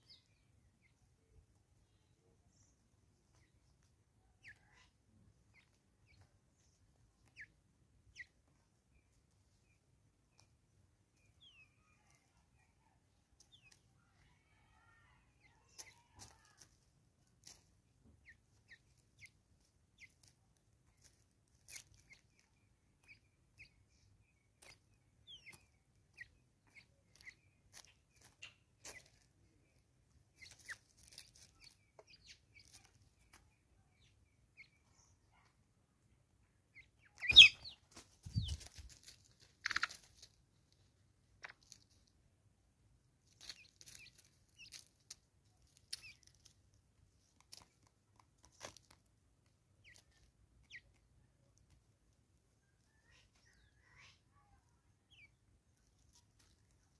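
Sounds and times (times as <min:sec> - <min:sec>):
bird chirps and taps: 0:24.6 - 0:29.2, 0:37.0 - 0:38.7.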